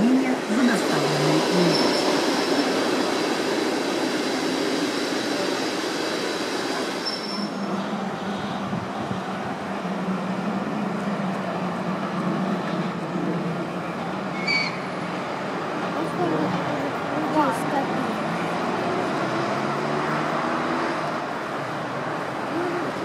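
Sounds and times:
train wheel and rail noise: 0:00.0 - 0:23.0.

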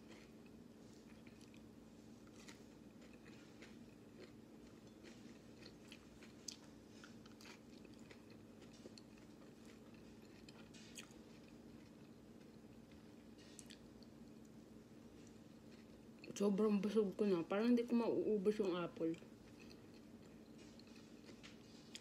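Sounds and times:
close-up chewing crunches: 0:00.0 - 0:14.1, 0:15.1 - 0:16.3, 0:19.4 - 0:22.0
low steady hum: 0:00.0 - 0:22.0.

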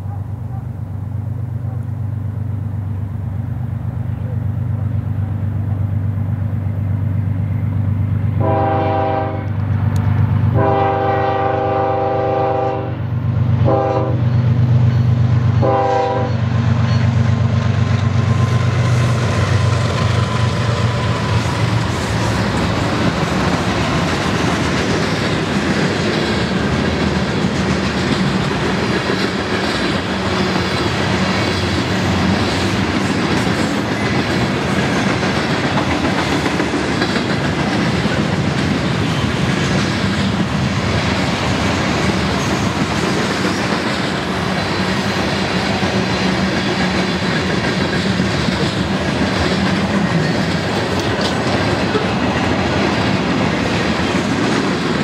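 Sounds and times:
diesel locomotive rumble: 0:00.0 - 0:55.0
train horn blasts: 0:08.3 - 0:09.6, 0:10.5 - 0:13.0, 0:13.6 - 0:14.3, 0:15.6 - 0:16.4
train wheels clattering on rails: 0:13.2 - 0:55.0.

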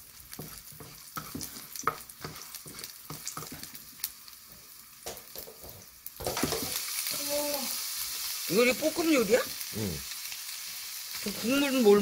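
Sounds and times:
spatula scraping and tapping pan: 0:00.0 - 0:06.8
garlic sizzling in oil: 0:00.0 - 0:12.0.

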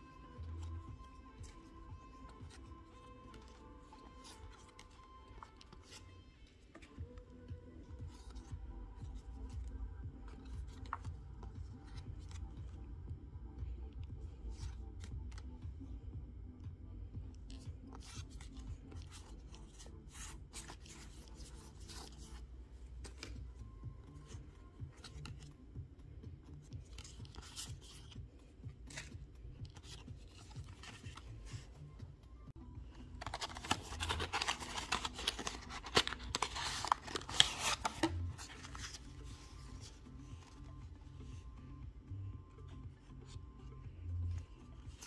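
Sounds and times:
card box rustling and scraping: 0:33.2 - 0:40.6.

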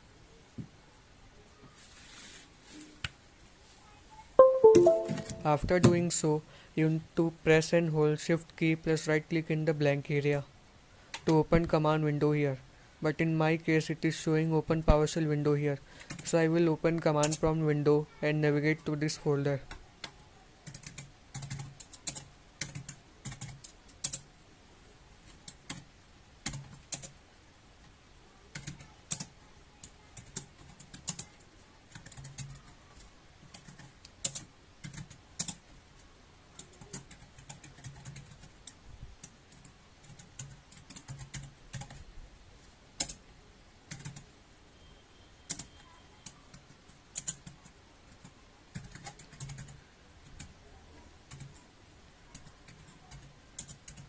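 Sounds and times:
computer keyboard typing: 0:04.4 - 0:06.0, 0:16.0 - 0:16.4, 0:17.0 - 0:17.4, 0:19.7 - 0:24.3, 0:25.2 - 0:27.2, 0:28.5 - 0:35.8, 0:36.6 - 0:42.0, 0:43.0 - 0:43.2, 0:43.9 - 0:44.3, 0:45.5 - 0:50.6, 0:51.2 - 0:51.6, 0:52.3 - 0:54.0.

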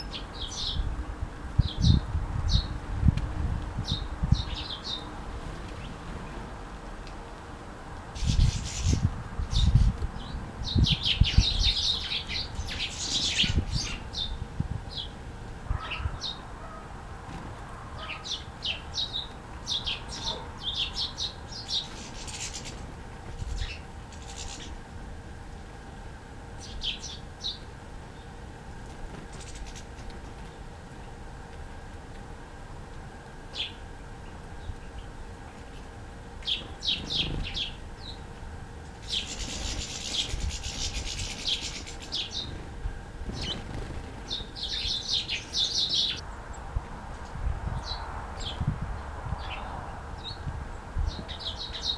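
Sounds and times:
small songbirds chirping: 0:00.0 - 0:01.0, 0:01.6 - 0:02.8, 0:03.8 - 0:06.5, 0:08.2 - 0:15.2, 0:15.8 - 0:16.5, 0:18.0 - 0:24.8, 0:26.6 - 0:28.4, 0:33.5 - 0:42.7, 0:43.3 - 0:46.6, 0:47.7 - 0:51.9.

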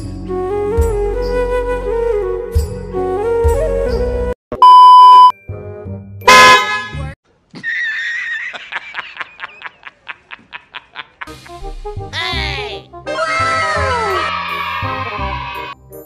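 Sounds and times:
flute music: 0:00.0 - 0:04.4
horn blasts: 0:06.2 - 0:07.2
man laughing hysterically: 0:07.5 - 0:11.4.

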